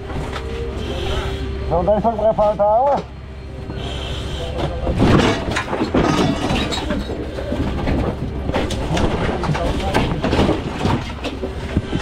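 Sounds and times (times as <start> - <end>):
truck engine low hum: 0.0 - 12.0
knocks and rustling in cab: 4.6 - 12.0.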